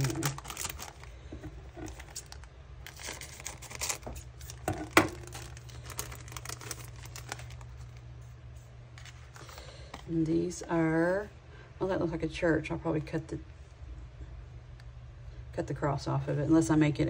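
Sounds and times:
plastic packaging crinkling: 0.0s - 10.1s.

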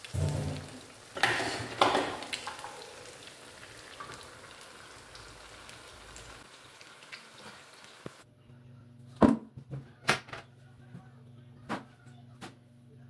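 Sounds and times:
oil crackling and sizzling: 0.0s - 8.2s.

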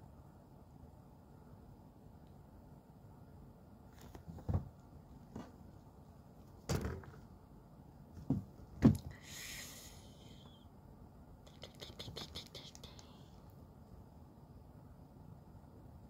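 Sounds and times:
dull knocks and thumps: 4.3s - 5.6s, 8.2s - 9.1s.

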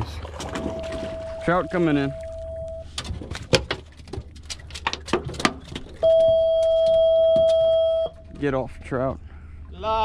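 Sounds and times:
electronic beep: 6.0s - 8.2s.

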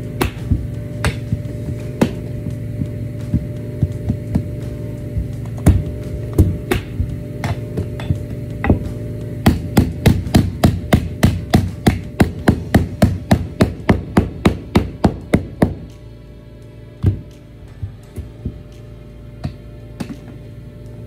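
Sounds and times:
background music: 0.0s - 21.0s.

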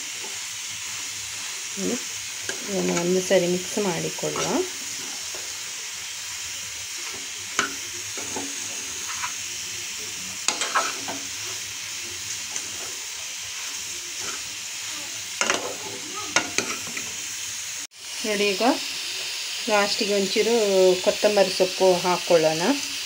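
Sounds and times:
vegetables frying with sizzle: 0.0s - 23.0s
metal spatula scraping pan: 4.2s - 5.4s, 7.0s - 9.5s, 10.4s - 11.7s, 12.4s - 14.6s, 15.4s - 17.1s.

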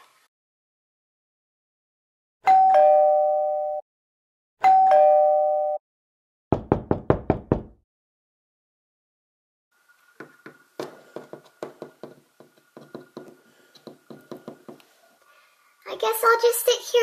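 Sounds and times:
doorbell ding-dong chime: 2.4s - 3.8s, 4.6s - 5.8s
knocking on a door: 6.5s - 7.8s, 10.2s - 14.8s.

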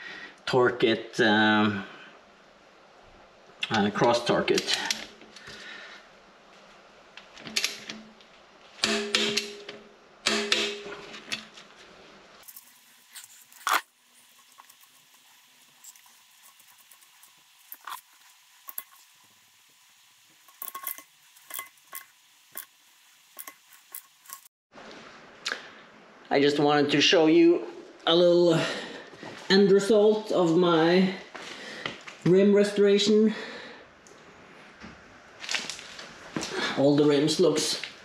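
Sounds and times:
metal clinking and ratcheting: 20.4s - 22.7s.

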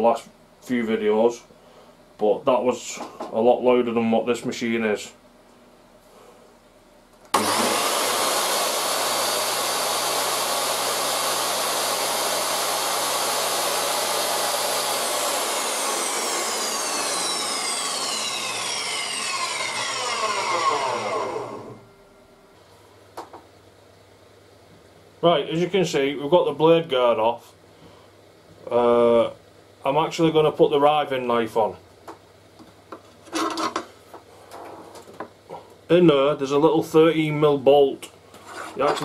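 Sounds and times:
table saw running: 7.3s - 21.9s.

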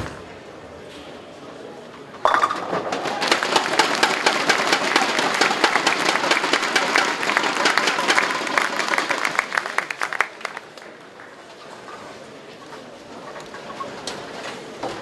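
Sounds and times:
audience applauding: 2.9s - 11.4s.

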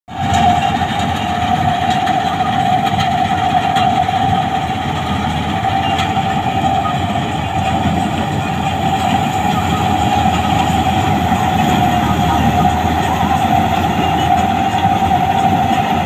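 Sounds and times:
combine harvester engine drone: 0.1s - 16.0s
high whine: 0.2s - 16.0s.

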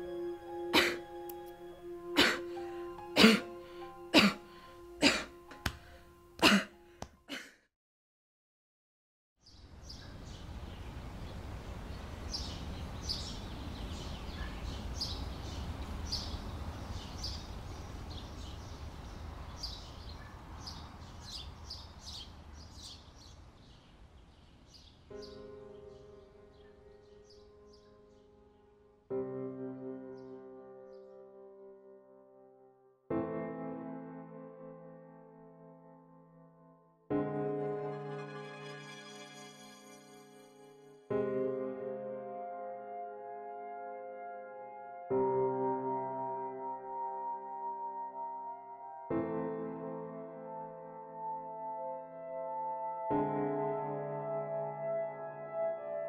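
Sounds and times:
music: 0.0s - 7.4s, 25.1s - 56.0s
held musical note: 37.1s - 42.2s.

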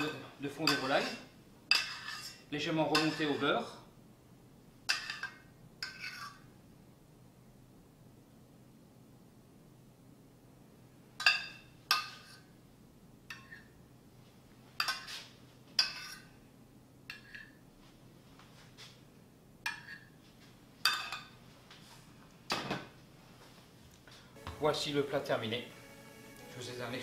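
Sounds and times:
metal spoon clinking on saucepan: 0.0s - 1.0s.

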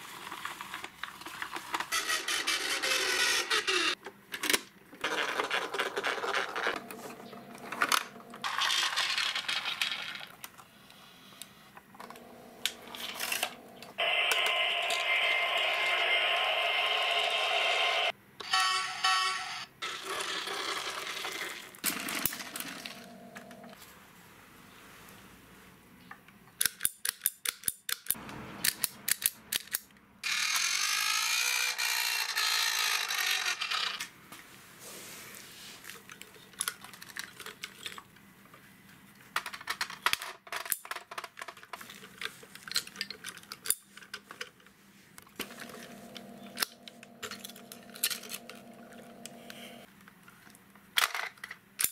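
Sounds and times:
toy electronic sound effects: 1.9s - 4.0s, 14.0s - 20.0s, 30.2s - 33.9s
hissing toy sound effect: 14.0s - 18.1s
plastic parts clicking: 26.5s - 30.0s, 35.9s - 38.2s, 39.2s - 44.7s.

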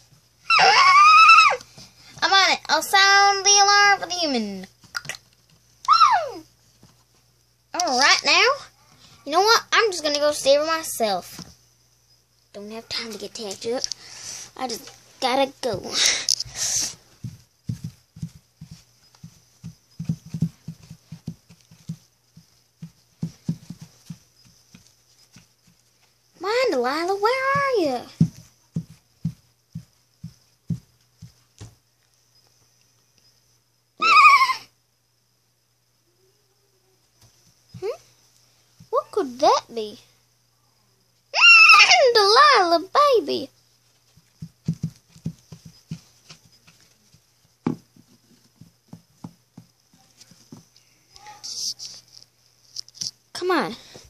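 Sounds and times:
toy hooves thudding on rug: 15.6s - 31.8s, 43.9s - 53.1s.

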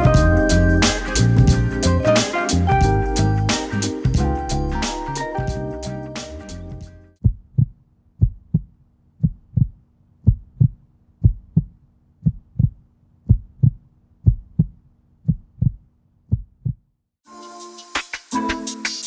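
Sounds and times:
heartbeat double thumps: 7.2s - 16.9s.

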